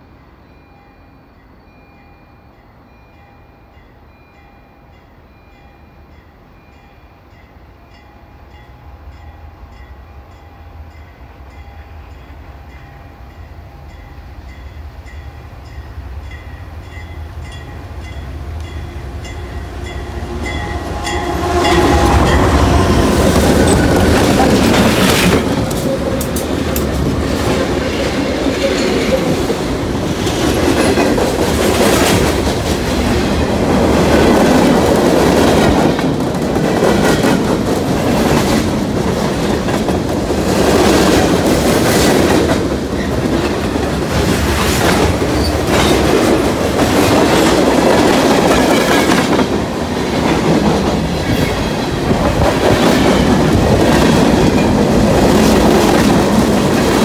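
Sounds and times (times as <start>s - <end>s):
diesel locomotives passing: 0.0s - 57.0s
train wheels clacking on rail joints: 18.6s - 57.0s.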